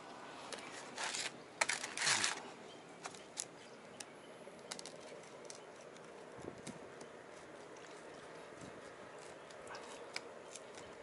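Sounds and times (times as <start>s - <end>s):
sandpaper scraping rustle: 0.6s - 2.4s.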